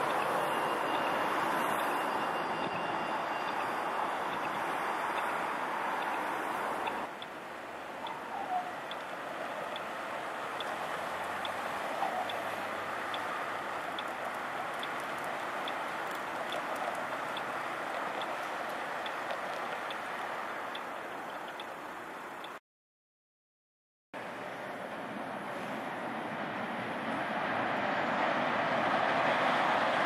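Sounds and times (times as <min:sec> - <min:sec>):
city street traffic: 0:00.0 - 0:22.6, 0:24.2 - 0:30.0
pedestrian crossing signal ticking: 0:00.0 - 0:22.6.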